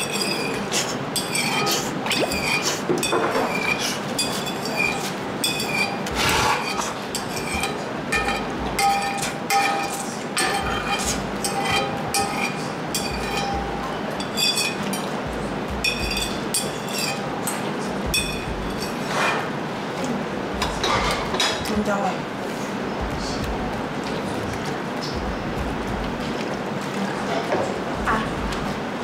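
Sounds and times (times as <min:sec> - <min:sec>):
metal spoon scraping porcelain bowl: 0:00.0 - 0:15.1, 0:15.9 - 0:17.6.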